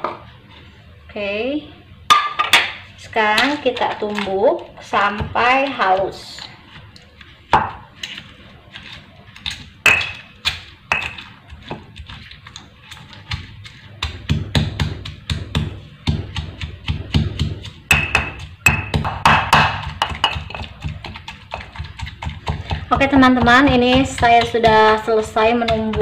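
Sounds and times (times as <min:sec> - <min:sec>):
stone pestle pounding in mortar: 0:09.4 - 0:12.0, 0:12.9 - 0:26.0.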